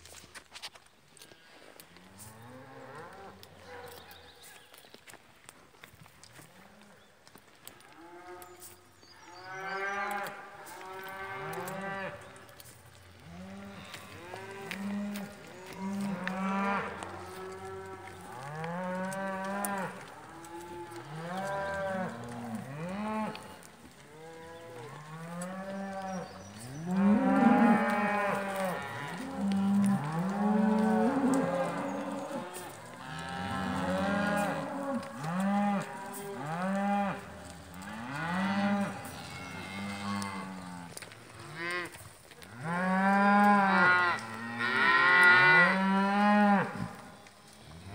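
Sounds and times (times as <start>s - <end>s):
cattle mooing: 13.2s - 47.0s.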